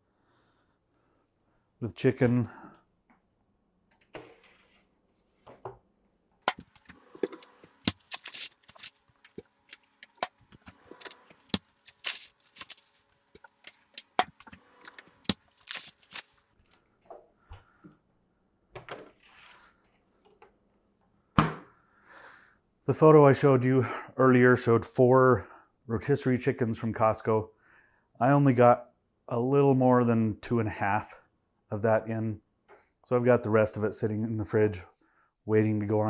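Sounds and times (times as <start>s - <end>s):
plastic wrap crinkling: 6.7s - 16.8s.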